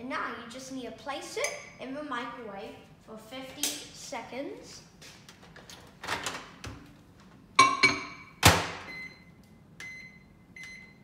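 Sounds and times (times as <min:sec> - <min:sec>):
microwave keypad beeps: 0:08.9 - 0:11.0.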